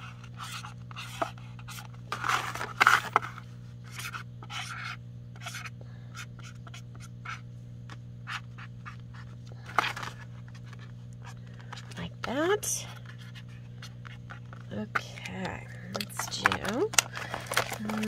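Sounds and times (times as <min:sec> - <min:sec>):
marker scratching on paper plate: 0:03.8 - 0:07.5.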